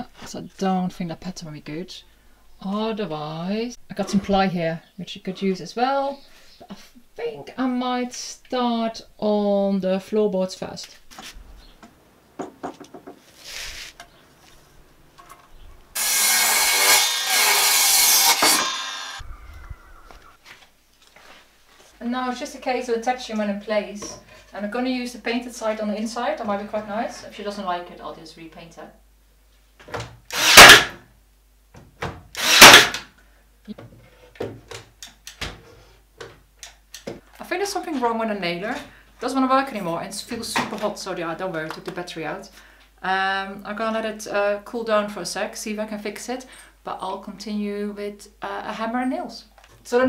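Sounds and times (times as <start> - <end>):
mitre saw cutting board: 16.0 - 19.2, 30.3 - 31.0, 32.4 - 33.0
nailer firing: 16.0 - 19.2, 30.3 - 31.0, 32.4 - 33.0.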